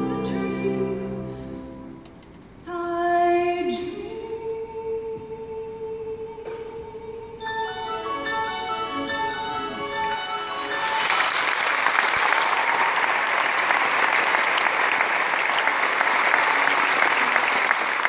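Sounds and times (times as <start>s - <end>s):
orchestra held notes: 7.4s - 11.5s
audience applauding: 10.6s - 18.0s.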